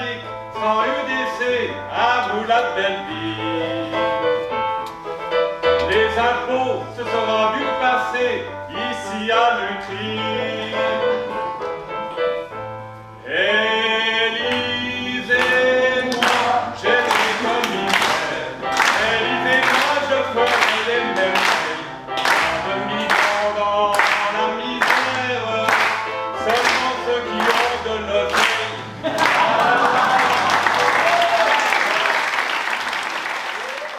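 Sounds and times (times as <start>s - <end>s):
man singing: 0.0s - 4.5s, 5.7s - 11.6s, 13.2s - 29.9s.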